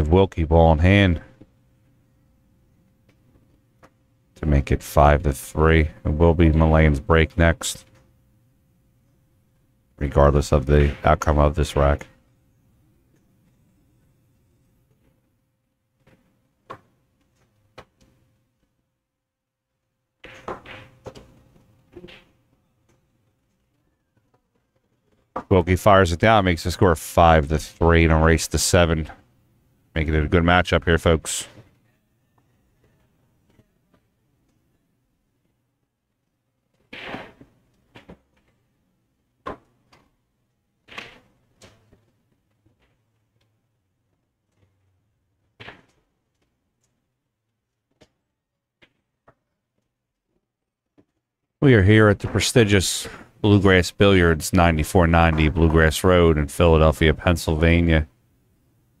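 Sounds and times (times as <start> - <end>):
pool balls clacking and knocking: 2.9 - 8.2, 10.0 - 12.4, 15.9 - 18.7, 20.2 - 26.4, 39.4 - 47.1, 52.1 - 58.0
pool balls clicking: 20.2 - 25.7, 53.0 - 56.4.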